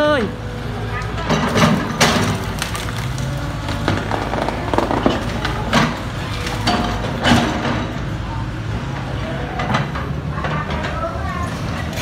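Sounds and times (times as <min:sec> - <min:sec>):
excavator diesel engine running: 0:00.0 - 0:12.0
branches cracking and snapping: 0:01.7 - 0:06.9.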